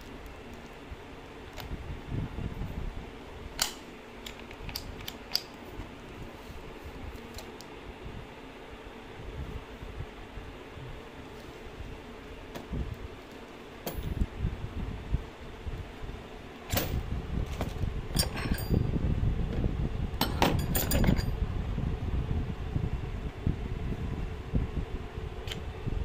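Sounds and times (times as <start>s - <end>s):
handling bumps and rustling: 12.4s - 14.3s, 16.7s - 18.9s.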